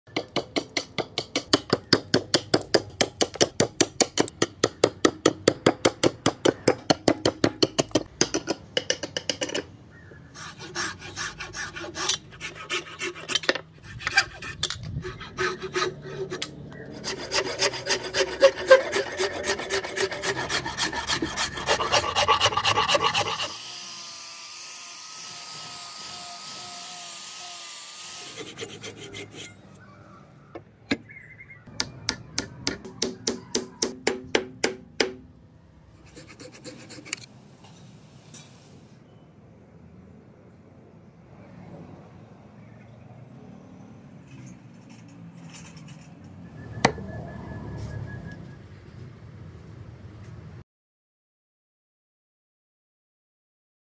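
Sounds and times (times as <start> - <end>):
rasping strokes on wood: 10.4 - 23.6, 28.2 - 29.6, 36.0 - 37.3
angle grinder sanding wood: 10.4 - 29.6
hand saw cutting wood: 10.4 - 29.6, 36.0 - 37.3.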